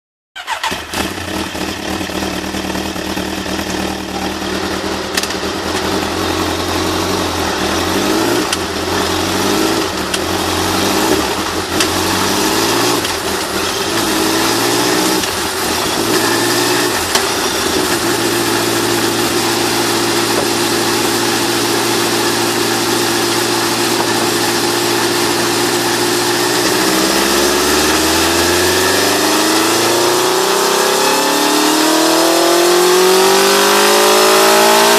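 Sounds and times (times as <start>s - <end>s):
motorcycle engine revving: 0.4s - 34.9s.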